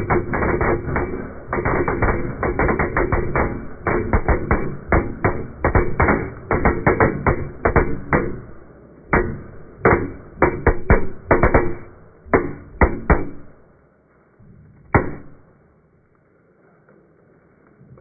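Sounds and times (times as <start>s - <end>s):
airsoft gun shots: 0.0s - 13.7s, 14.9s - 15.5s.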